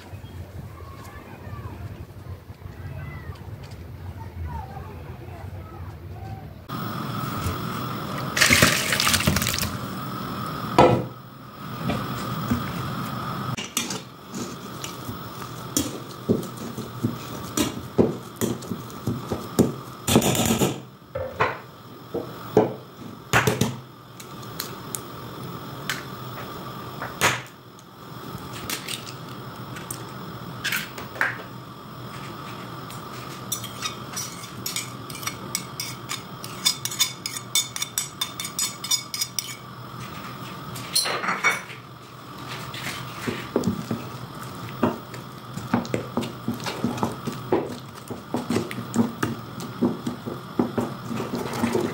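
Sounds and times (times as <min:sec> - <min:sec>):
utensils clattering on cookware: 0:33.5 - 0:39.7, 0:40.9 - 0:41.8.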